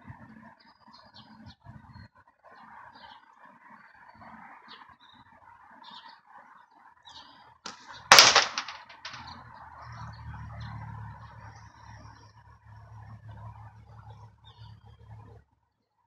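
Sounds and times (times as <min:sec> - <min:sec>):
bird chirps: 0:00.6 - 0:08.0
sharp impact on target: 0:07.7 - 0:09.3.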